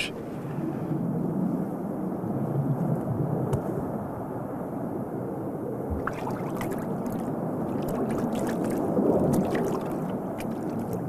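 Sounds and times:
underwater rushing and gurgling: 0:05.8 - 0:11.0
air bubbles popping: 0:05.9 - 0:11.0.

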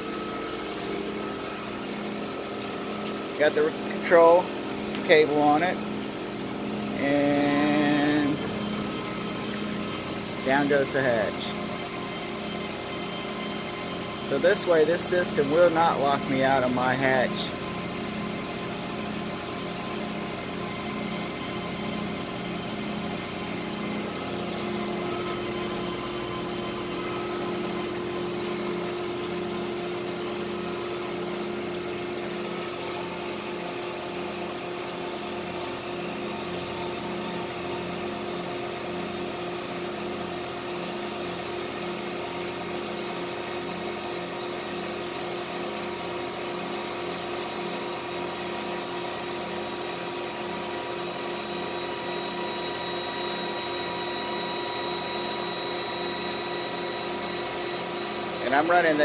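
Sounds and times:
linear actuator motor whirring: 0:03.8 - 0:34.6, 0:47.0 - 0:59.0.

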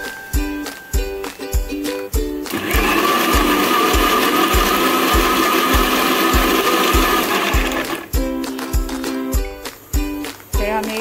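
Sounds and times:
background music beat: 0:00.0 - 0:11.0
mixer grinder whining: 0:02.5 - 0:08.2.

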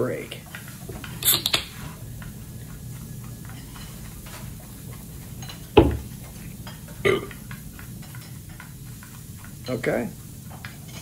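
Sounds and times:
loud thump: 0:05.8 - 0:06.1
man gulping a drink: 0:07.0 - 0:07.4.

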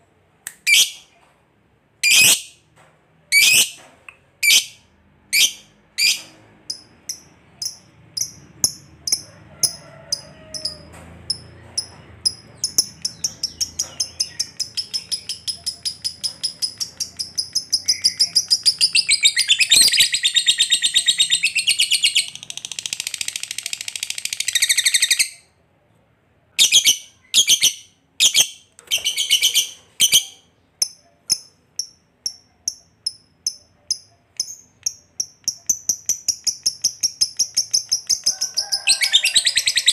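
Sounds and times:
lovebird chirping: 0:04.4 - 0:09.8, 0:10.5 - 0:25.5, 0:26.6 - 0:39.9
lovebird chattering trill: 0:05.4 - 0:25.1.

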